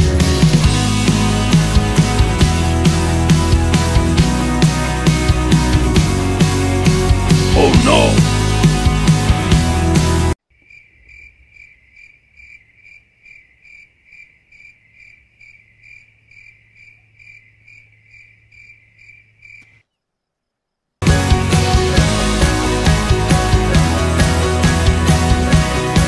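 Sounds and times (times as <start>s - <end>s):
rock music: 0.0s - 10.3s, 21.0s - 26.0s
cricket chirping: 10.5s - 20.9s.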